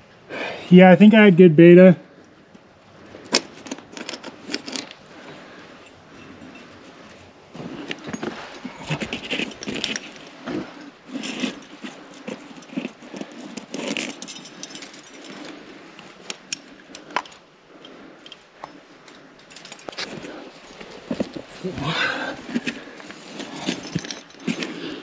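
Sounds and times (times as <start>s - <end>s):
climbing gear clinking and jangling: 3.2s - 25.0s.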